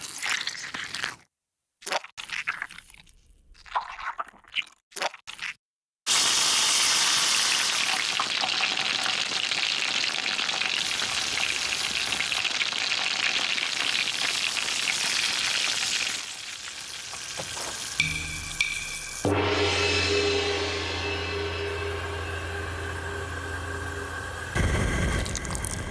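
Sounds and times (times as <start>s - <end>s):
dough frying in hot oil: 6.1s - 18.0s
music: 18.0s - 24.6s.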